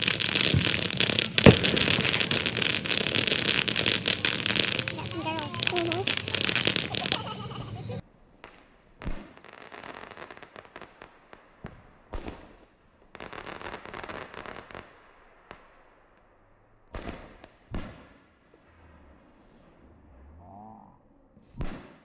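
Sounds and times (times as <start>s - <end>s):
firework bangs: 0.0s - 10.8s
fireworks crackling: 0.0s - 16.0s.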